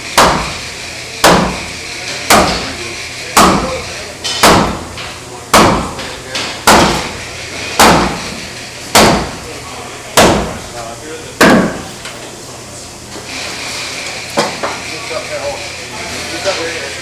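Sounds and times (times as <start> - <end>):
hammer blows on wood: 0.1 - 1.7, 3.4 - 3.8, 4.4 - 6.0, 6.6 - 7.2, 7.8 - 9.4.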